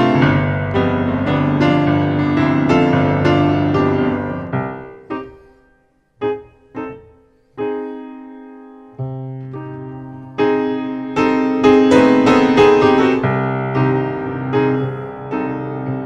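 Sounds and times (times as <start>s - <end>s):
slow piano music: 0.0s - 16.0s.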